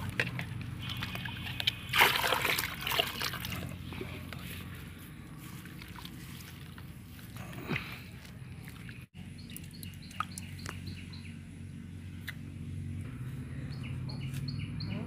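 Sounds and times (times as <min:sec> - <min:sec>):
steady low hum: 0:00.0 - 0:14.8
bird chirping: 0:08.7 - 0:11.7, 0:13.4 - 0:15.0.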